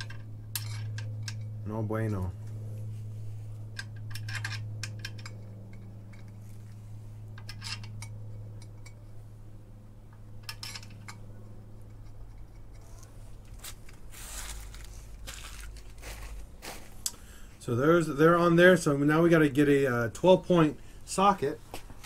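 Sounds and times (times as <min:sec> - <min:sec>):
small metal clinks and scrapes: 0:00.0 - 0:01.6, 0:02.6 - 0:09.2, 0:10.1 - 0:16.4
steady low hum: 0:00.0 - 0:22.0.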